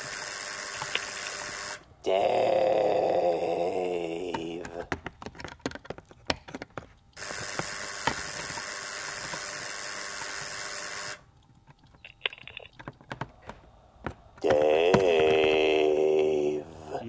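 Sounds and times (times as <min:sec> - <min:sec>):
screwdriver clicking and scraping: 0:05.2 - 0:09.6.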